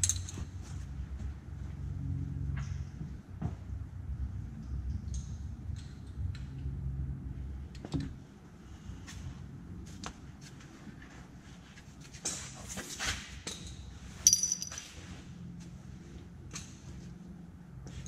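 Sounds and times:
sharp metallic clink: 14.2 - 15.0.

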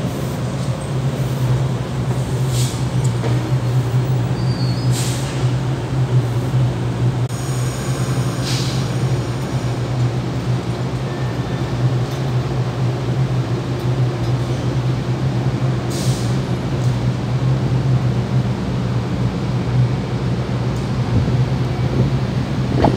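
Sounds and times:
diesel engines droning: 0.0 - 22.9
short air hiss: 2.4 - 3.0, 4.8 - 5.6, 7.3 - 9.3, 15.9 - 16.5.

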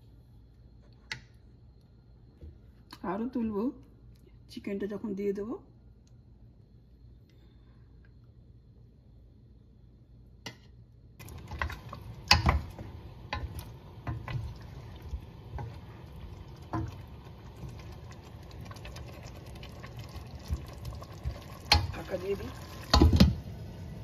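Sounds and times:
pot simmering: 11.2 - 24.0.

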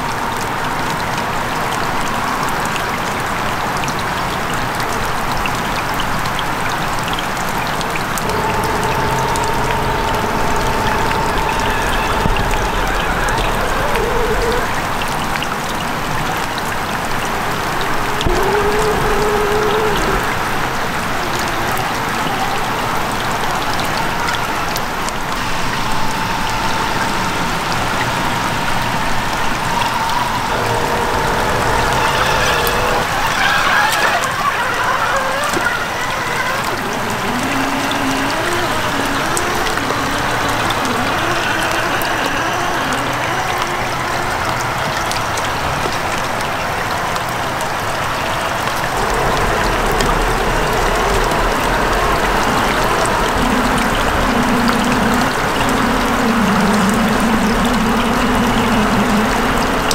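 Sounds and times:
rain falling: 0.0 - 59.9
stream water running: 0.0 - 59.9
rc car electric motor whine: 8.2 - 14.8, 18.2 - 20.5, 28.6 - 44.6.

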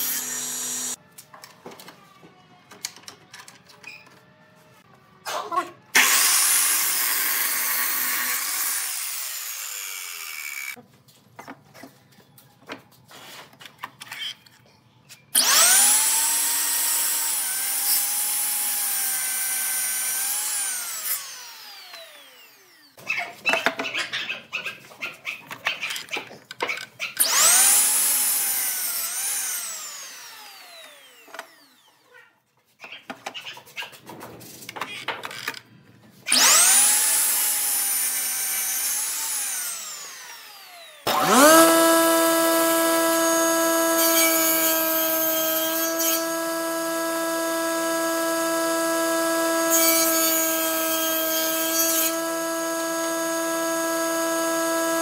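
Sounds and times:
miter saw whining: 0.0 - 1.0, 6.0 - 10.8, 15.4 - 22.9, 36.3 - 55.0
table saw humming: 0.0 - 1.0, 6.0 - 10.8, 15.4 - 22.9, 27.2 - 31.9, 36.3 - 55.0.

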